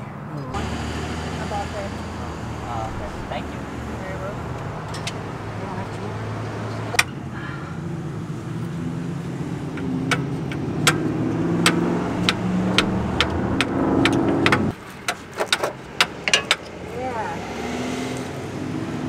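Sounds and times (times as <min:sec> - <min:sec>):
vehicle engine running: 0:00.5 - 0:14.7
hand tools tapping on metal: 0:04.9 - 0:05.2, 0:09.7 - 0:16.7.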